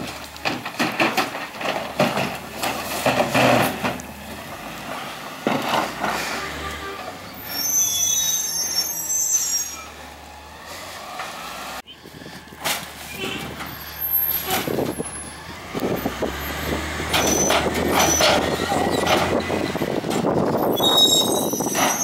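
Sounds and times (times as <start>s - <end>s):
trash clanking into hopper: 0.0s - 6.4s
high squeal: 6.2s - 10.0s, 16.4s - 19.1s, 20.6s - 22.0s.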